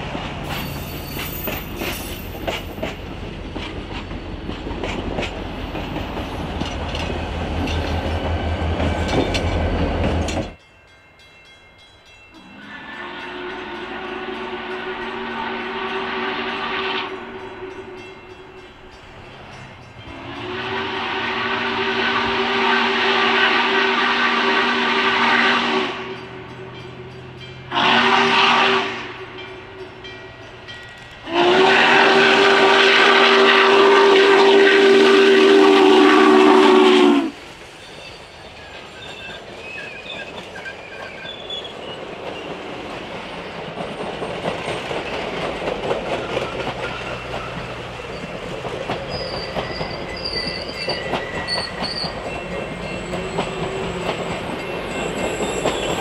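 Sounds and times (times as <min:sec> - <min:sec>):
train rumbling and clattering: 0:00.0 - 0:56.0
steam chime whistle blasts: 0:00.5 - 0:02.6, 0:12.3 - 0:18.9, 0:20.0 - 0:26.9, 0:27.7 - 0:30.2, 0:31.2 - 0:41.8, 0:49.1 - 0:56.0.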